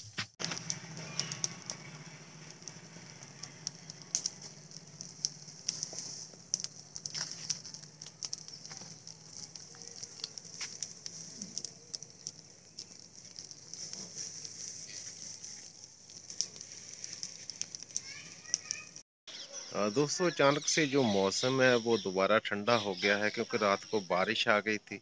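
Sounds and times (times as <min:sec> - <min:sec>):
high-pitched hiss: 0:00.4 - 0:07.8
dry leaves burning and crackling: 0:00.4 - 0:19.0.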